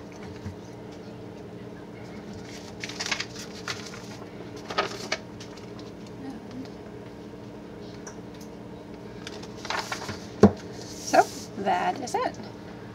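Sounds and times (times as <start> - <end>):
steady low hum: 0.0 - 12.9
paper rustling: 2.2 - 6.0, 9.2 - 11.5.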